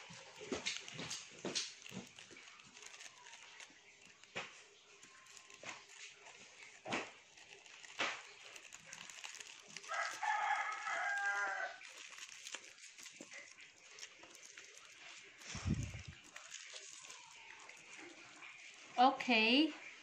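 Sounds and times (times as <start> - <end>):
candy wrappers crinkling: 0.0 - 19.0
rooster crowing: 9.8 - 12.1.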